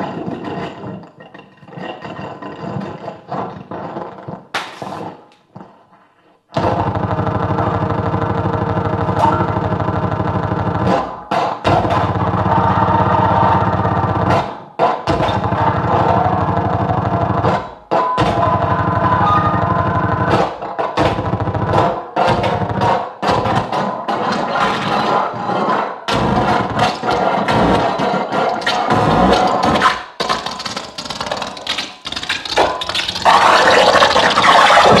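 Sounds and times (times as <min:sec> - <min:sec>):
scratchy sounds: 0:00.0 - 0:35.0
heavily distorted noise with rough pulse: 0:06.6 - 0:35.0.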